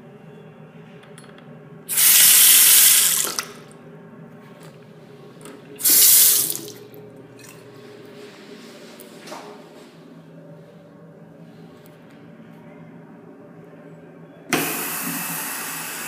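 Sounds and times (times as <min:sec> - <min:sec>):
faucet water running into basin: 0:01.9 - 0:03.5, 0:05.8 - 0:06.8.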